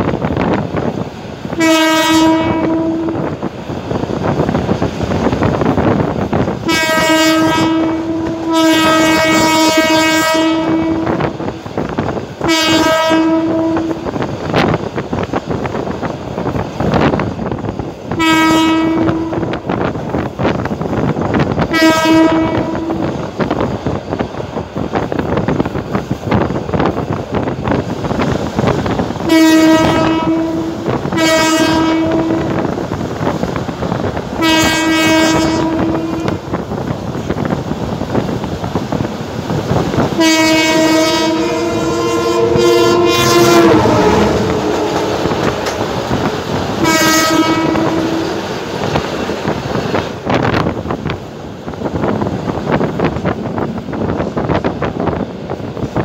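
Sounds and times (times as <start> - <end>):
train running: 0.0 - 56.0
train horn blasts: 1.5 - 3.5, 6.6 - 11.4, 12.4 - 14.2, 18.1 - 19.8, 21.6 - 23.3, 29.2 - 32.8, 34.4 - 36.6, 40.1 - 49.0.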